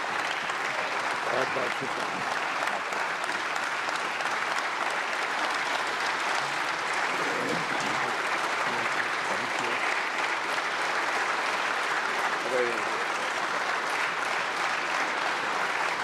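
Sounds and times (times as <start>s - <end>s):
crowd applauding: 0.0s - 16.0s
faint voices: 6.4s - 9.8s.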